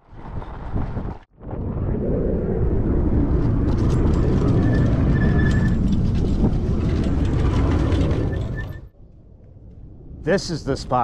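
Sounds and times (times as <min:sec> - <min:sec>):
wind on microphone: 0:00.0 - 0:08.5.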